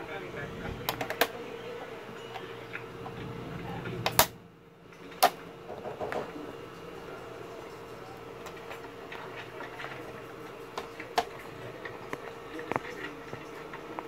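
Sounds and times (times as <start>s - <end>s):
faint steady hum: 0.0s - 14.0s
plastic clips snapping loose: 4.0s - 4.4s.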